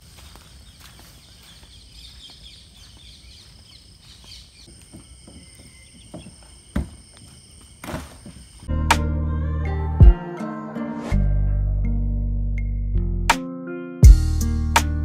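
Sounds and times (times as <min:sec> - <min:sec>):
birds chirping: 0:00.0 - 0:08.7
steady insect whine: 0:00.0 - 0:08.7.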